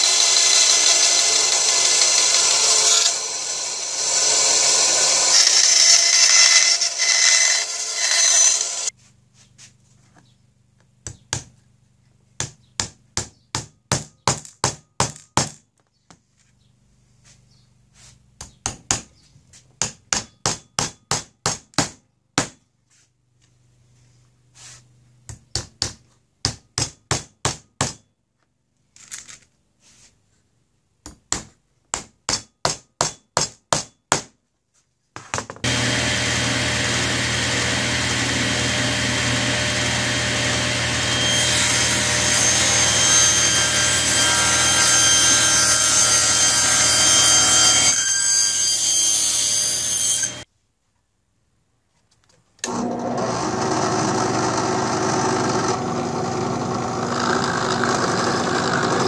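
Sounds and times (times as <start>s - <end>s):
table saw cutting wood: 0.0s - 9.0s, 35.6s - 50.5s, 52.6s - 59.0s
hammer striking wood: 12.4s - 15.6s, 19.8s - 22.6s, 25.3s - 28.0s, 31.1s - 34.3s.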